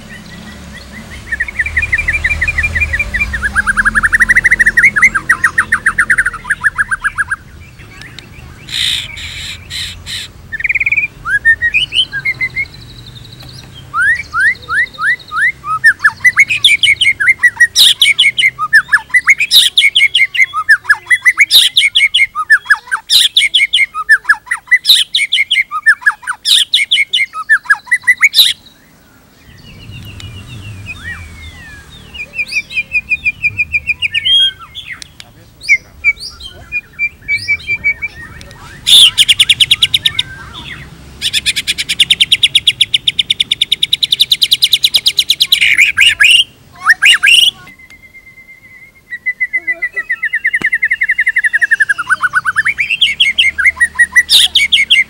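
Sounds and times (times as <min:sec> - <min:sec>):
songbird singing: 0:00.0 - 0:55.0.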